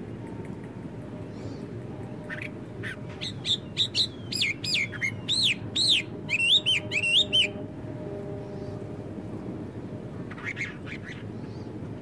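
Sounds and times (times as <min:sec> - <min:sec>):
blackbird singing: 0:02.2 - 0:07.6.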